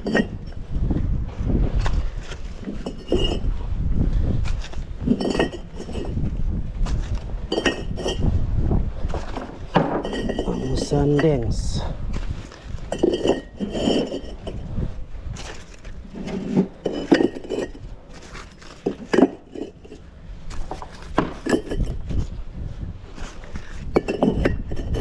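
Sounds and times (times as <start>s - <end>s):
bricks clinking when stacked: 0.0s - 0.6s, 4.6s - 8.3s, 9.1s - 11.6s, 12.8s - 14.6s, 15.4s - 22.2s, 23.2s - 25.0s.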